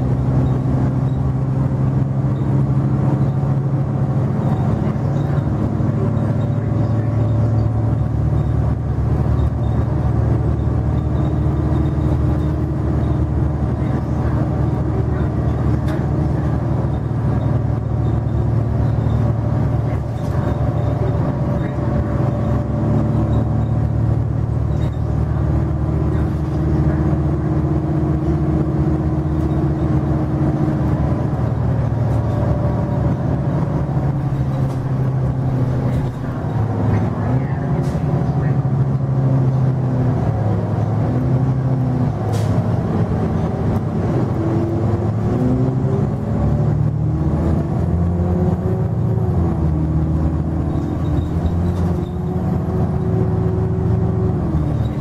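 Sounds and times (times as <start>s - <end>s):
bus engine drone: 0.0s - 55.0s.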